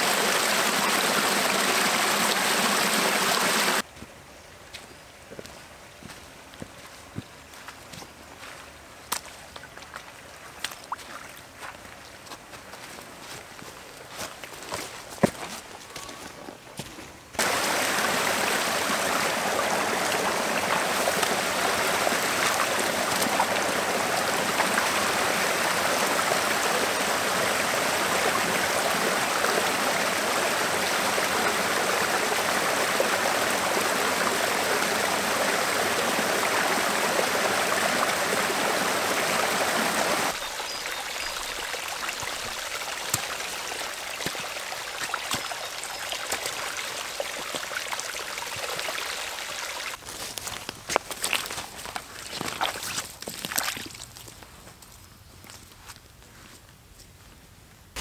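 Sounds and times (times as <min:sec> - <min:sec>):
creek water rushing over rocks: 0:00.0 - 0:03.8, 0:17.4 - 0:50.0
water trickling: 0:17.4 - 0:50.0.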